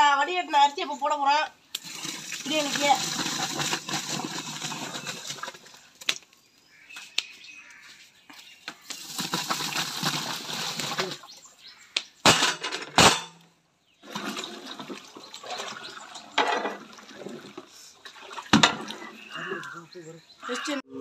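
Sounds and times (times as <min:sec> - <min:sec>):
pot stirred with paddle: 0:01.8 - 0:05.7
rice pouring and splashing: 0:01.8 - 0:05.8, 0:08.8 - 0:11.3, 0:14.0 - 0:19.0
loud metal knocks: 0:12.2 - 0:13.4.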